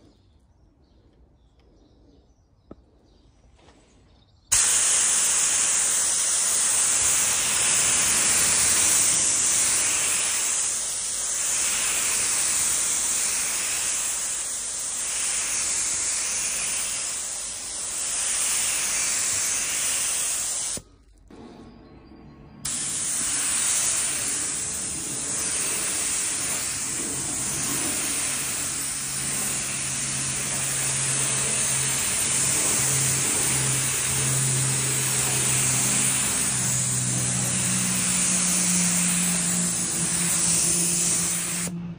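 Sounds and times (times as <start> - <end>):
spray gun hissing: 4.5 - 20.9, 22.7 - 41.8
low hum: 20.8 - 41.9.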